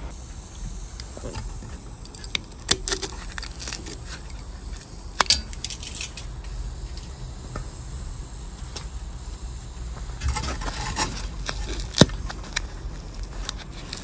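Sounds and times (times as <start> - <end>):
knife cutting foam insulation: 2.0 - 5.6, 10.4 - 14.0.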